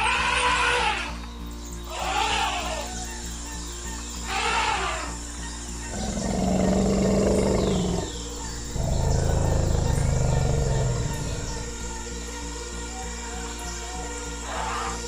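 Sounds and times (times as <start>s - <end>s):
animal cries: 0.0s - 1.3s, 1.9s - 3.2s, 4.2s - 5.2s, 5.8s - 12.0s, 14.4s - 15.0s
background music with steady beat: 5.1s - 15.0s
low animal roar: 5.9s - 12.0s.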